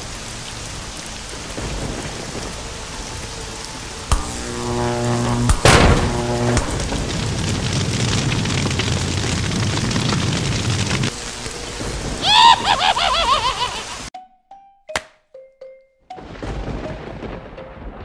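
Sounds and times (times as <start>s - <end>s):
cartoon heavy rain: 0.0s - 14.1s, 16.2s - 18.0s
warbling electric zaps: 4.1s - 7.2s
loud crash: 5.3s - 7.7s.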